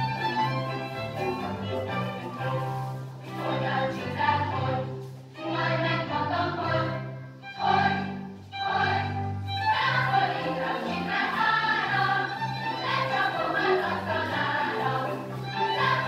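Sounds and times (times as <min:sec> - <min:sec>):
choir singing with orchestra: 0:03.3 - 0:16.0.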